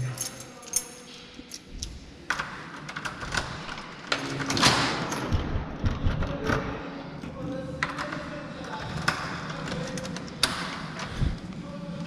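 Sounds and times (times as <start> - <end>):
keys and door lock clicking: 0.0 - 5.4, 9.5 - 11.2.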